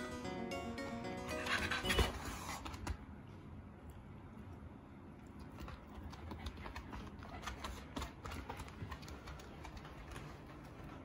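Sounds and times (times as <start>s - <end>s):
dog claws tapping on floor: 5.6s - 11.0s.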